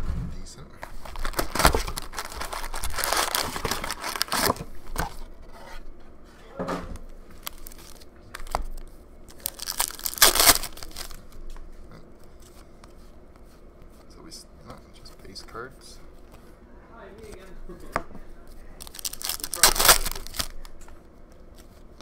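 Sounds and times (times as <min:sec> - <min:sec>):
foil packs rustling: 0:00.8 - 0:05.2, 0:07.3 - 0:11.2, 0:18.8 - 0:20.8
foil wrapper ripping: 0:01.0 - 0:04.6, 0:07.3 - 0:11.2, 0:18.8 - 0:20.8
cardboard box tearing: 0:01.0 - 0:05.1, 0:18.8 - 0:20.5.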